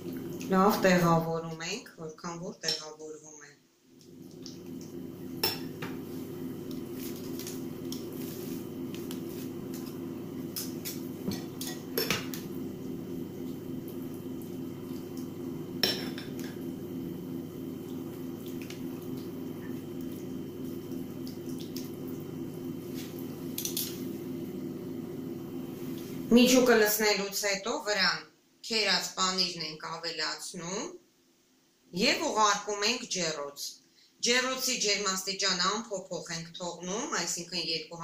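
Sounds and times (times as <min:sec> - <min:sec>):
steady low hum: 0:03.9 - 0:27.2.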